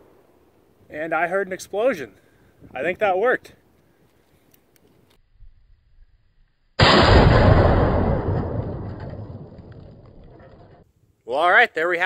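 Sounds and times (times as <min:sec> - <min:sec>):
gunshot and explosion bang: 0:06.8 - 0:10.8.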